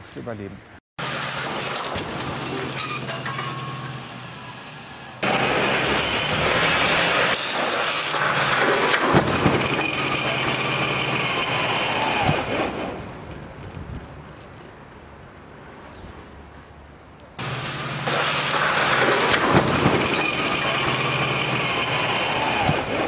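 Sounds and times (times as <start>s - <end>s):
impact bangs and crunches: 1.0s - 3.9s, 5.2s - 13.8s, 17.4s - 23.0s
engine low hum: 1.0s - 23.0s
loud rushing noise: 3.6s - 13.3s, 17.4s - 23.0s.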